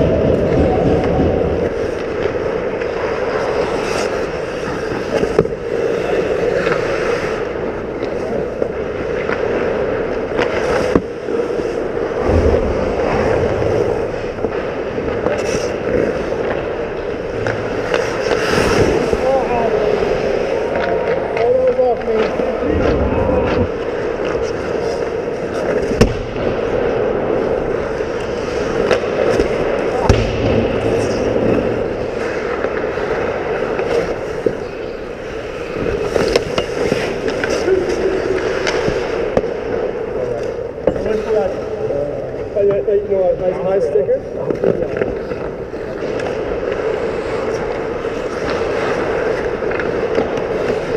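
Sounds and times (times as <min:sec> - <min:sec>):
skates scraping on ice: 0:00.0 - 0:43.1, 0:43.8 - 0:50.9
stick and puck clacks: 0:00.4 - 0:11.9, 0:14.3 - 0:19.2, 0:20.6 - 0:26.5, 0:27.9 - 0:41.3, 0:44.4 - 0:50.9
low rumble: 0:22.5 - 0:24.2
stick or puck clacks: 0:35.8 - 0:39.8, 0:48.4 - 0:50.9.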